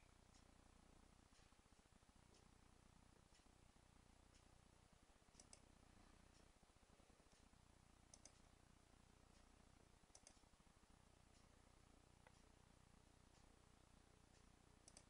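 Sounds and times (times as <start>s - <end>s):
faint ticks: 5.3s - 6.6s, 7.3s - 8.5s, 10.1s - 10.5s, 12.2s - 12.6s, 14.3s - 15.0s.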